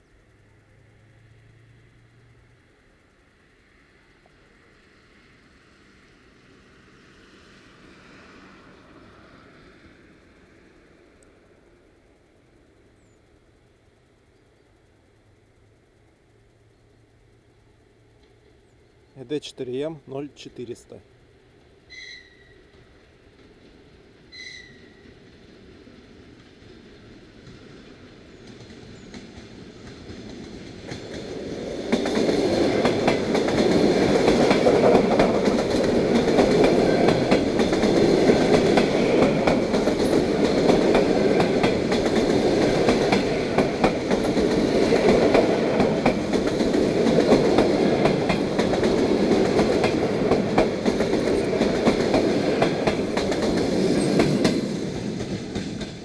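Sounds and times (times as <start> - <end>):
electric train passing: 0.0 - 56.0
wheel-on-rail clicks: 26.3 - 56.0.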